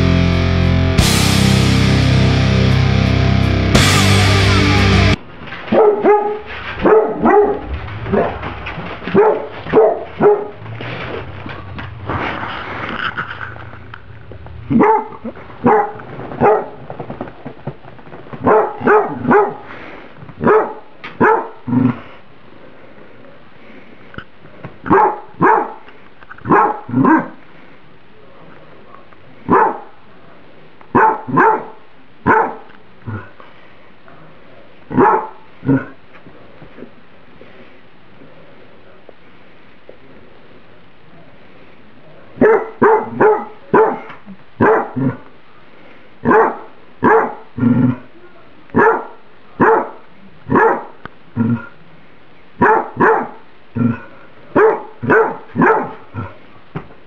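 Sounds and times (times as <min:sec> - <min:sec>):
loud rock music: 0:00.0 - 0:05.2
dog barking: 0:05.7 - 0:08.4, 0:09.1 - 0:10.6, 0:14.7 - 0:16.8, 0:18.4 - 0:19.7, 0:20.4 - 0:21.6, 0:24.8 - 0:25.8, 0:26.5 - 0:27.4, 0:28.9 - 0:30.0, 0:30.9 - 0:33.3, 0:34.9 - 0:35.9, 0:42.4 - 0:45.2, 0:46.2 - 0:47.5, 0:48.8 - 0:51.0, 0:52.6 - 0:53.4, 0:54.5 - 0:56.3.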